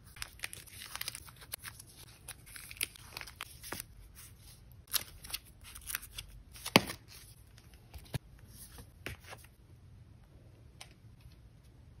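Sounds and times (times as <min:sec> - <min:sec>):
plastic pages rustling: 0:00.1 - 0:08.2.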